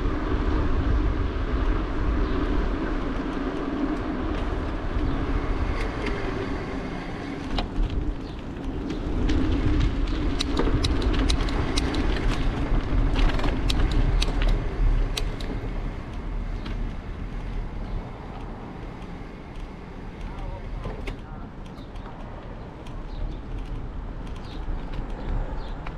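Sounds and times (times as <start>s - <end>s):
wind and tyres rumbling: 0.0s - 25.9s
sharp clicks and rattles: 3.3s - 25.9s.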